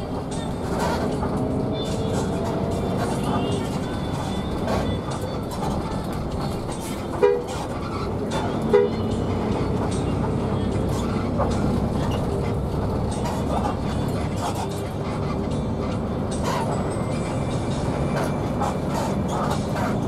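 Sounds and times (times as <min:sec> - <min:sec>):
bus engine and road noise: 0:00.0 - 0:20.0
two-note vehicle horn honks: 0:08.7 - 0:09.0.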